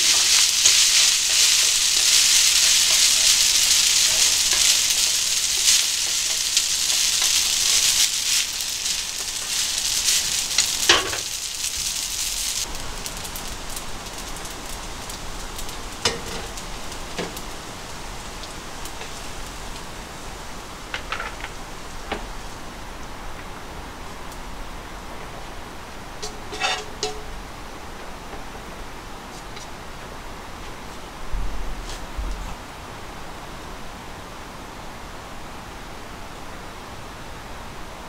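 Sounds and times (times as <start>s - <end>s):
utensil clacking against pan: 0.0s - 11.3s, 26.2s - 27.3s
pasta sizzling in frying pan: 0.0s - 24.4s, 25.3s - 29.9s.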